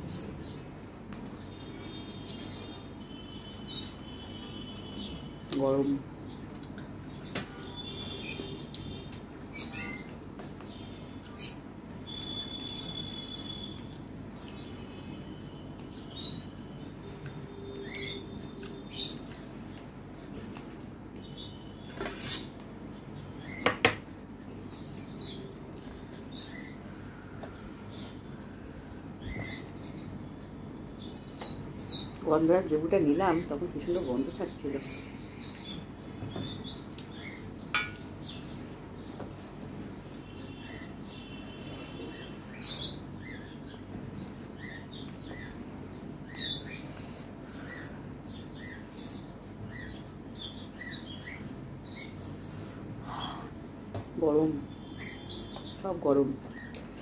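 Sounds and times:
low background hum: 0:00.0 - 0:57.0
brass bowl clinking on metal dishes: 0:37.7 - 0:38.1.

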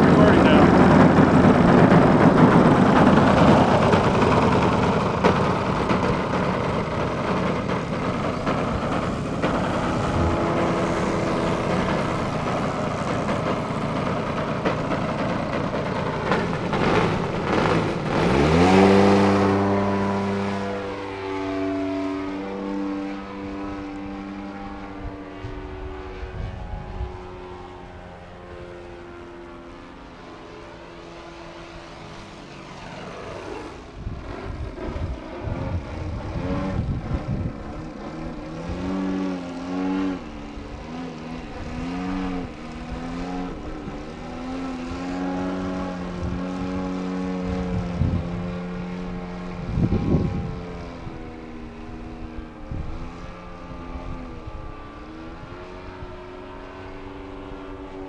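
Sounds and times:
loud rushing noise: 0:00.0 - 0:21.4
model plane engine droning: 0:00.0 - 0:58.0.

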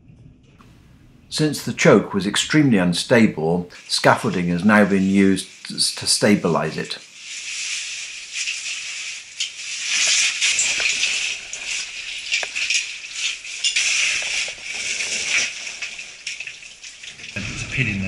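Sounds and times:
gear scraping against rock: 0:07.2 - 0:16.8
loose stones rattling: 0:07.2 - 0:17.4.

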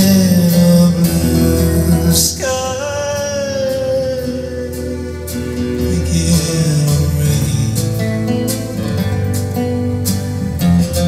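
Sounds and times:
country song with acoustic guitar: 0:00.0 - 0:11.0.

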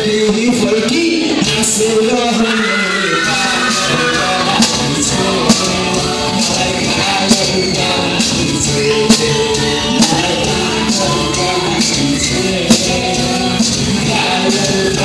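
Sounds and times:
amplified backing music: 0:00.0 - 0:15.0
man singing into microphone: 0:00.0 - 0:15.0
steady drum beat: 0:03.4 - 0:15.0.

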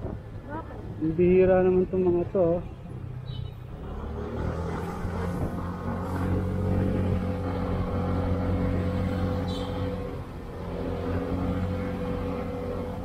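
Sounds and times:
scooter engine running: 0:05.6 - 0:13.0.

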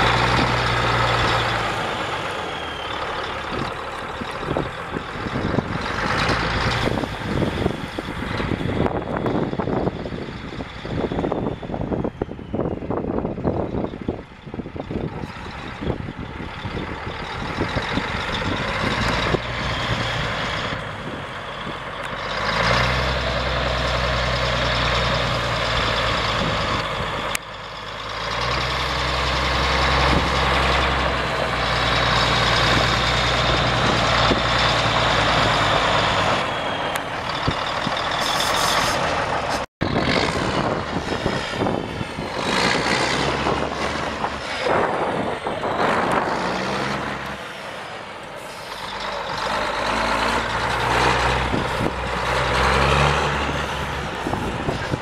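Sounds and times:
truck diesel engine running: 0:00.0 - 0:55.0.

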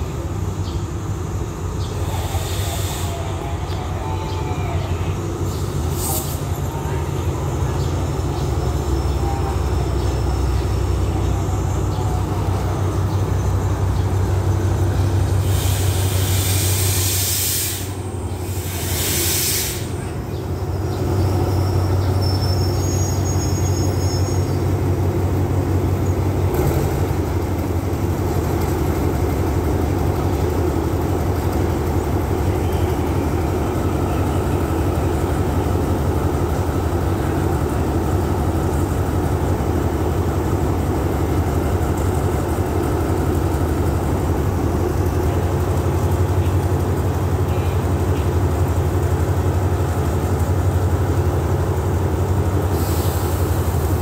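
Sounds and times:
locomotive engine hum: 0:00.0 - 0:54.0
air brakes hissing: 0:01.9 - 0:03.4, 0:05.4 - 0:06.5, 0:15.3 - 0:20.1, 0:52.6 - 0:54.0
faint brake squeal: 0:21.2 - 0:24.7.

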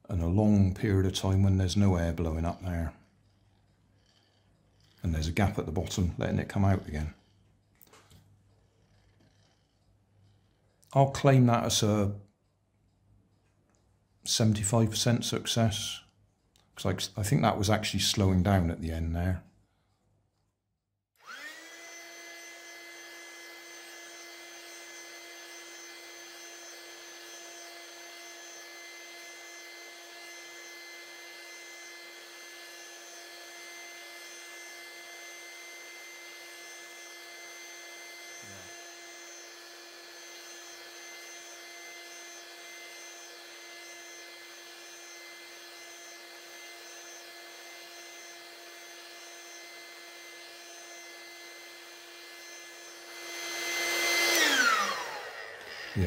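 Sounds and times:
electric air pump humming: 0:21.2 - 0:56.0.

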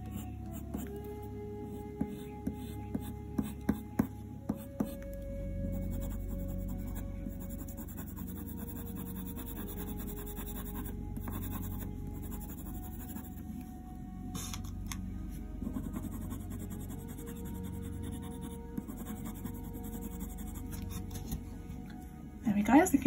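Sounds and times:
soft ambient music: 0:00.0 - 0:23.0
coloured pencil rubbing on paper: 0:05.8 - 0:13.4, 0:15.7 - 0:21.2.

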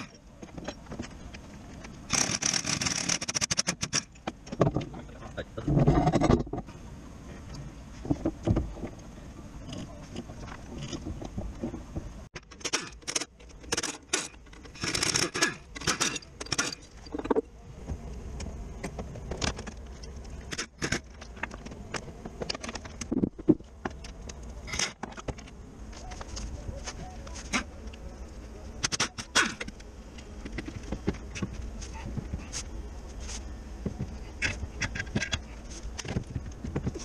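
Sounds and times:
metal tools clinking and rattling: 0:12.4 - 0:17.4.

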